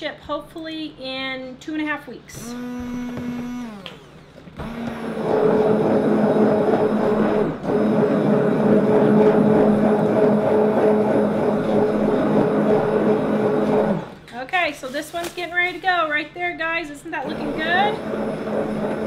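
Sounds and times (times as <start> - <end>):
stick blender motor whine: 2.4 - 4.0, 4.6 - 14.2, 17.3 - 19.0.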